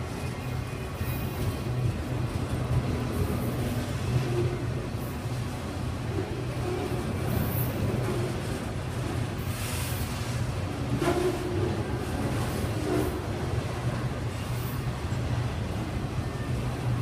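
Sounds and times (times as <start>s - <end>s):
freight train rolling past: 0.0s - 17.0s.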